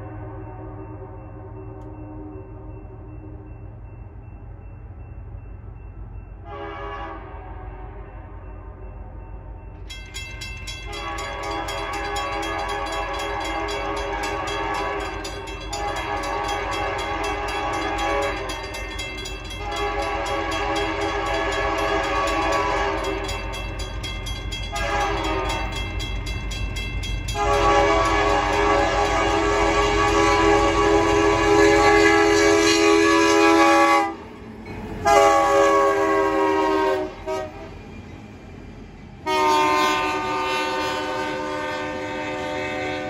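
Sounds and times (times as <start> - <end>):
train rumbling: 0.0 - 43.0
locomotive air horn blasts: 6.4 - 8.2, 10.9 - 18.6, 19.5 - 23.3, 24.7 - 25.7, 27.4 - 34.2, 35.0 - 37.7, 39.2 - 43.0.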